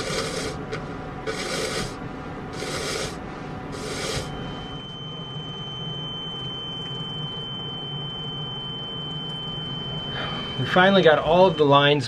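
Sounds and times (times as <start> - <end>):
hand pump hissing strokes: 0.0 - 0.6, 1.3 - 2.0, 2.6 - 3.2, 3.8 - 4.3
electric fuel pump whining: 0.0 - 12.0.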